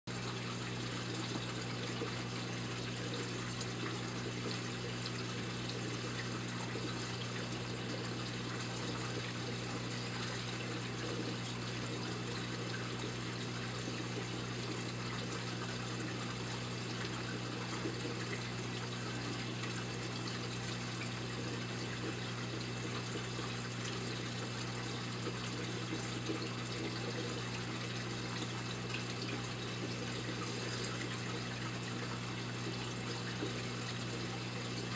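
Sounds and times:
aquarium water hiss: 0.2s - 34.9s.

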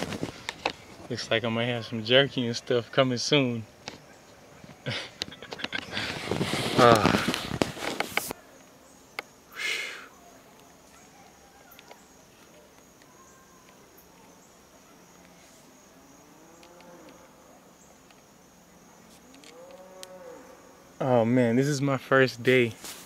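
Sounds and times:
insects chirring: 0.0s - 23.0s
distant animal call: 9.4s - 15.3s.

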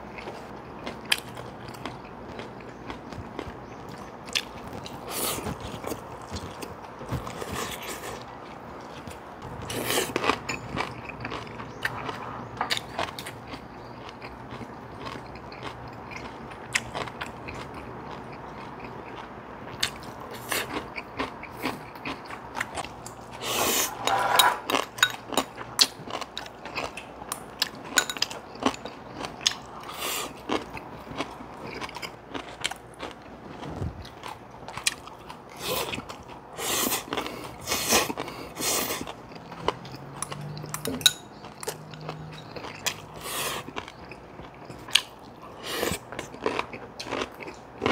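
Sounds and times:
people chewing and crunching: 0.0s - 47.9s.

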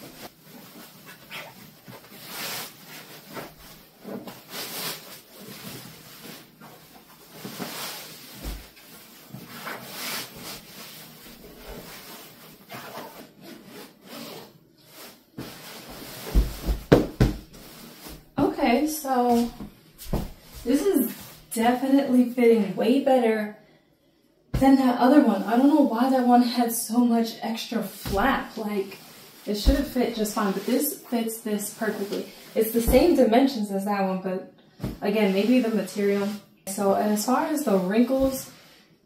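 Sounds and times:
fabric rustling and swishing: 0.0s - 21.5s, 28.0s - 33.2s
dull thumps: 16.3s - 17.6s, 29.6s - 30.3s.

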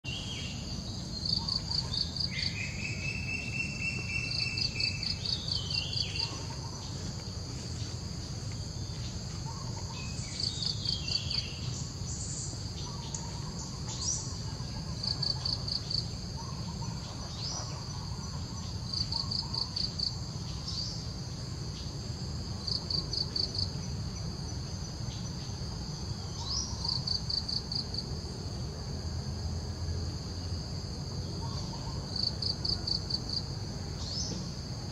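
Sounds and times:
insect chirping pulses: 0.0s - 34.9s
bird calls: 0.1s - 7.2s, 8.9s - 21.1s, 31.4s - 32.2s.

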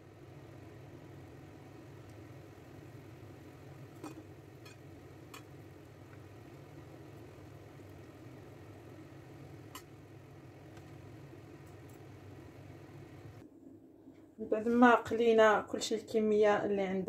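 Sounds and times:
pastry frying in oil: 0.0s - 13.4s
steady low hum: 0.0s - 16.0s.

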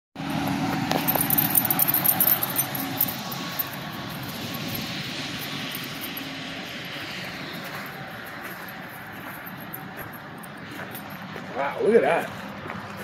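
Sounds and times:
distant passing traffic: 0.2s - 13.0s.

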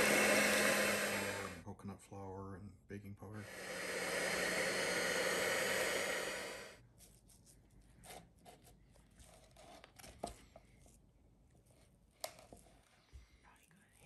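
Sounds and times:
electric hand mixer whirring: 0.0s - 1.6s, 3.4s - 6.8s.

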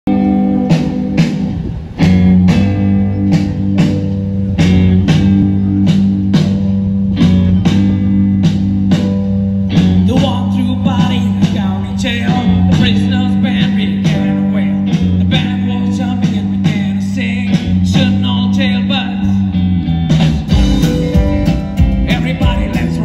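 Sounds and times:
live rock band playing: 0.1s - 23.0s
sharp drum hits: 20.2s - 22.8s.

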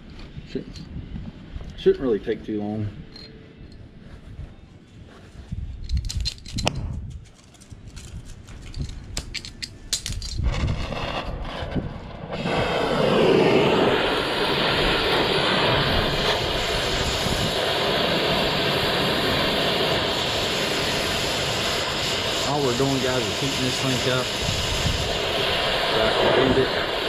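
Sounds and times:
torch flame rushing hiss: 10.4s - 27.0s.

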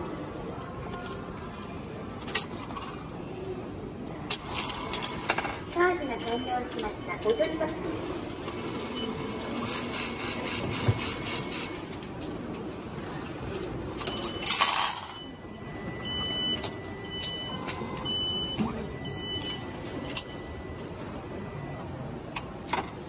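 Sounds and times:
coins clattering: 14.0s - 15.2s
steady machine tone: 14.0s - 22.2s.

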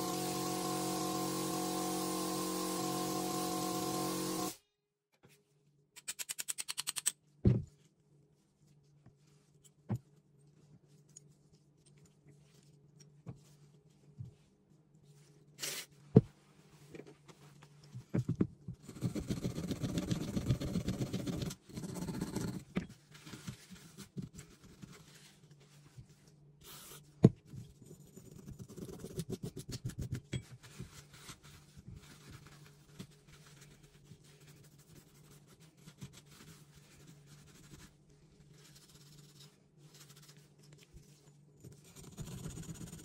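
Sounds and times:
metal parts clicking: 6.0s - 7.2s.

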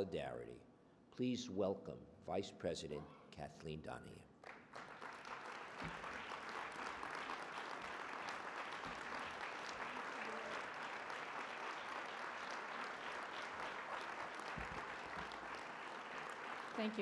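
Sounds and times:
audience applauding: 4.4s - 17.0s.

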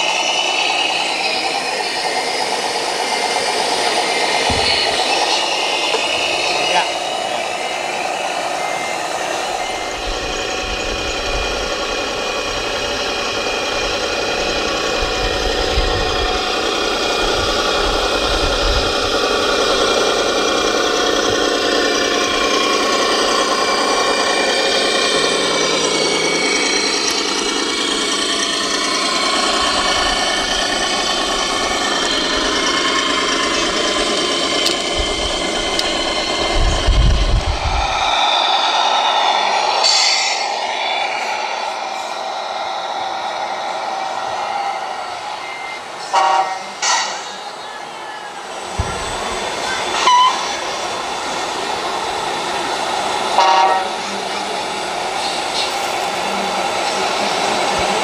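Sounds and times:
electronic diesel engine sound: 0.0s - 58.0s.

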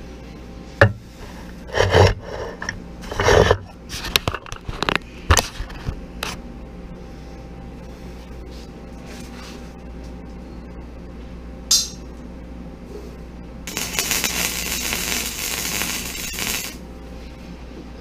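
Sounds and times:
steady low hum: 0.0s - 18.0s
welding arc crackling hiss: 13.7s - 16.8s.

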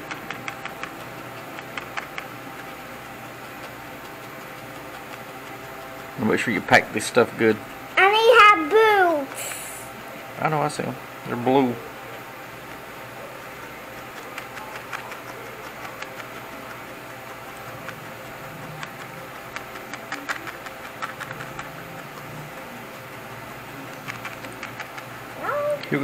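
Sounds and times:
felting needle ticking: 0.0s - 8.8s
steady hum: 0.0s - 26.0s.

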